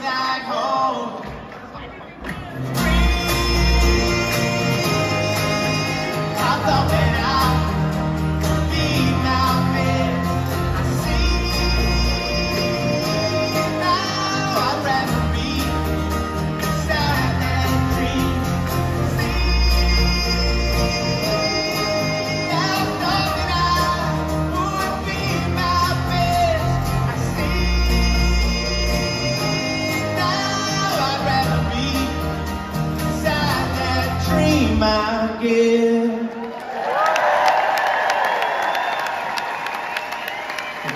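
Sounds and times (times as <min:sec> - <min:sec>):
acoustic and electric guitars: 0:00.0 - 0:36.8
live pop-rock band: 0:00.0 - 0:36.8
several voices singing: 0:02.8 - 0:32.4.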